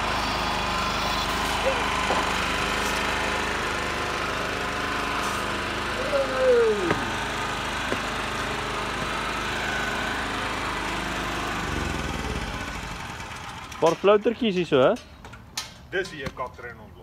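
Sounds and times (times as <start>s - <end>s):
drain-cleaning machine motor running: 0.0s - 14.7s
short falling whine: 5.9s - 7.4s.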